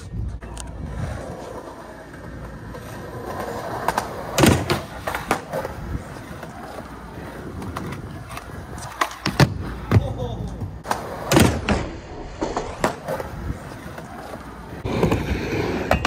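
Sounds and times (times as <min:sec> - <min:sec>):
skateboard wheels rolling on concrete: 0:00.0 - 0:16.0
skateboard clacks: 0:00.4 - 0:16.0.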